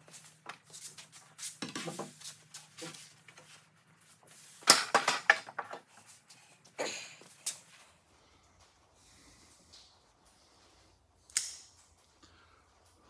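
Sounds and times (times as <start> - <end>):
wooden boards knocking and clattering: 4.6 - 5.9.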